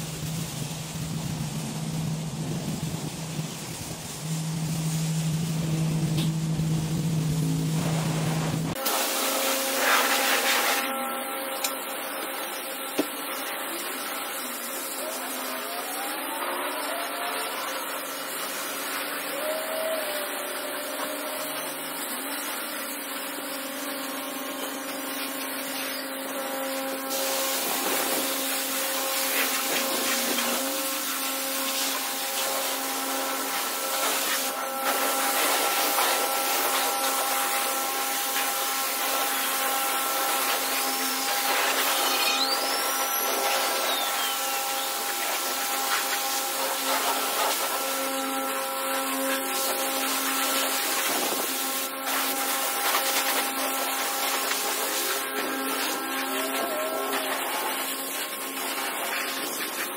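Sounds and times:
pressure washer spray hissing: 0:00.0 - 0:59.9
pump machinery hum: 0:00.0 - 0:59.9.

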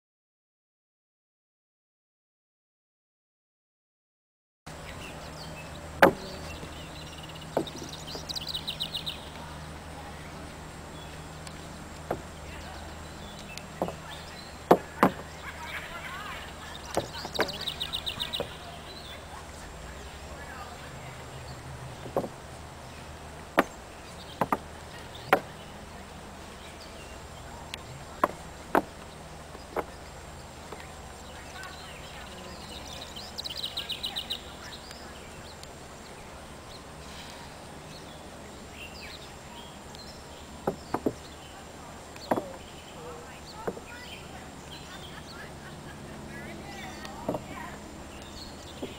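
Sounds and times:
bird chirping: 0:04.7 - 0:48.9
steady low hum: 0:04.7 - 0:48.9
hooves knocking on wooden plank: 0:06.0 - 0:06.7, 0:07.5 - 0:08.3, 0:11.5 - 0:12.4, 0:13.4 - 0:15.4, 0:16.9 - 0:18.6, 0:21.9 - 0:22.5, 0:23.4 - 0:25.6, 0:27.7 - 0:30.0, 0:40.6 - 0:41.2, 0:42.2 - 0:42.6, 0:43.6 - 0:43.9, 0:47.2 - 0:47.5.

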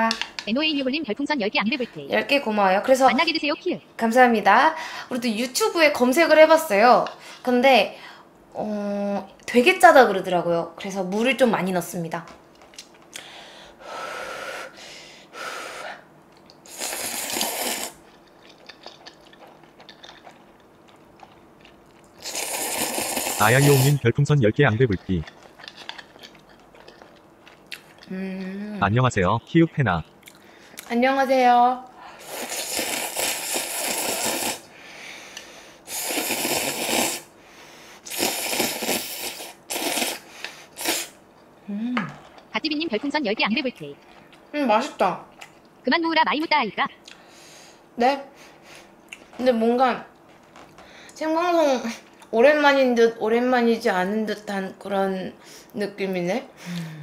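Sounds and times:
person slurping noodles: 0:16.7 - 0:18.0, 0:22.2 - 0:24.0, 0:32.2 - 0:34.6, 0:35.9 - 0:37.3, 0:38.0 - 0:41.2.

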